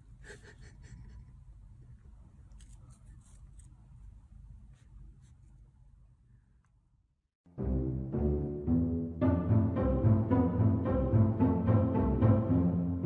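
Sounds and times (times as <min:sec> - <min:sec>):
low room hum: 0:00.0 - 0:07.2.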